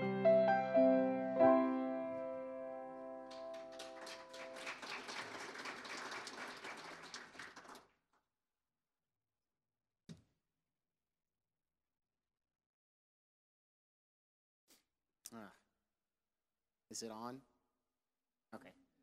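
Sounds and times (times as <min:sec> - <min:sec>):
piano playing: 0:00.0 - 0:05.0
crackling noise: 0:03.0 - 0:05.2.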